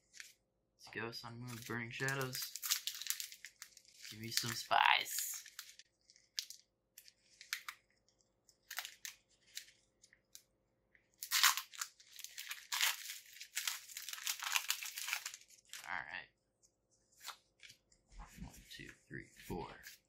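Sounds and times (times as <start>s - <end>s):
foil wrapper crinkling: 1.5s - 8.0s, 8.6s - 9.8s, 11.2s - 15.9s.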